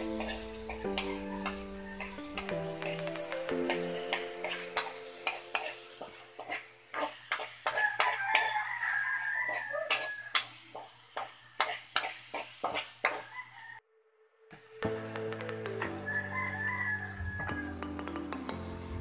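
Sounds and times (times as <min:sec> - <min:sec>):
metal ladle scraping a wok: 0:00.0 - 0:03.1
oil sizzling: 0:00.0 - 0:13.3.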